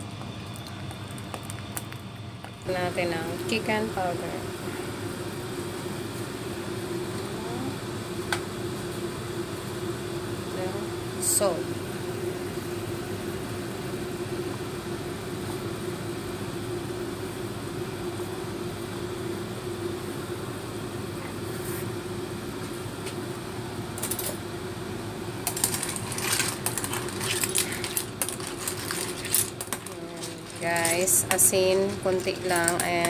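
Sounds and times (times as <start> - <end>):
soup boiling in a pot: 0.0 - 33.0
steady hum: 0.0 - 33.0
clam shells clattering: 25.5 - 32.9.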